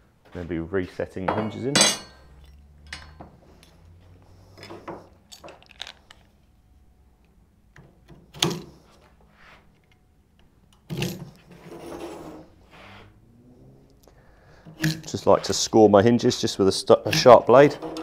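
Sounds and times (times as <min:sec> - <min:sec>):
metal clicks and knocks: 0:01.3 - 0:03.8, 0:16.9 - 0:18.0
knife scraping metal: 0:11.0 - 0:13.1, 0:16.9 - 0:18.0.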